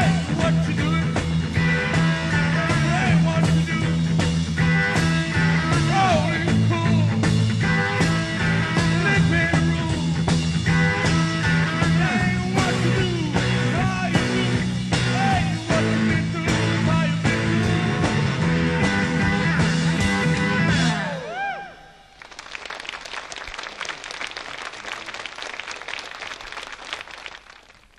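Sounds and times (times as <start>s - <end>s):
live rock band playing: 0.0s - 21.3s
audience applause: 22.2s - 27.9s.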